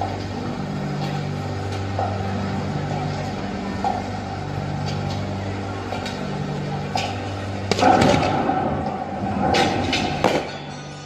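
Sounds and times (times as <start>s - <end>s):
crowd chatter: 0.0s - 10.5s
low hum: 0.0s - 11.0s
sharp crack: 7.7s - 8.6s.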